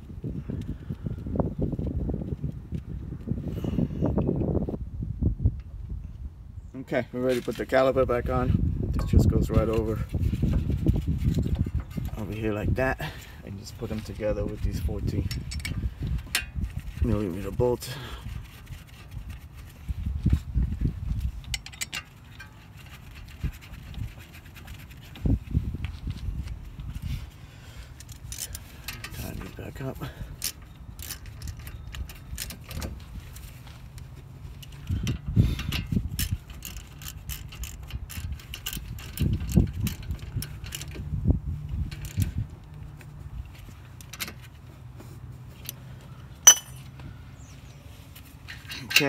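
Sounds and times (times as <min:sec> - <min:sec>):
gloved hands scraping metal: 0:09.2 - 0:12.5, 0:13.2 - 0:29.4
ratchet clicking: 0:34.7 - 0:40.9.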